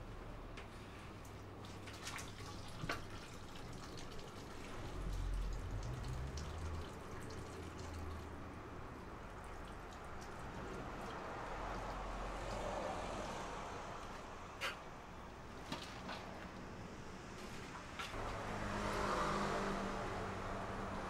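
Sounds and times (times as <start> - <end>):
wet dripping liquid: 1.2 - 12.8.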